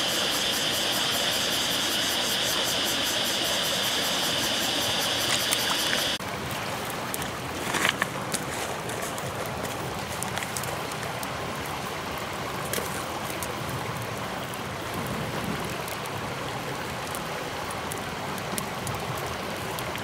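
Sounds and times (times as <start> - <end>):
high-pitched buzz: 0.0 - 6.2
stream water over stones: 0.0 - 20.0
wood fire crackling: 0.0 - 20.0.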